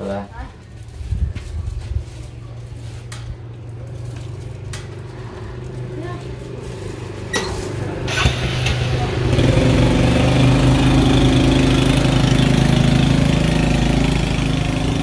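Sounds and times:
small motorbike engine: 0:05.0 - 0:15.0.

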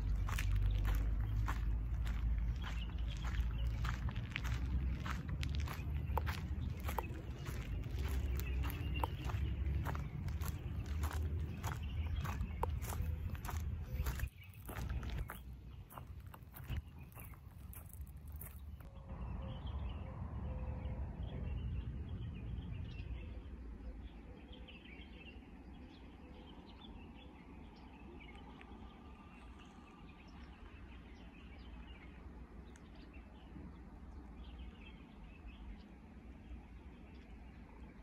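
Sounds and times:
small birds chirping: 0:00.0 - 0:20.1, 0:20.8 - 0:38.0
low background rumble: 0:00.0 - 0:38.0.

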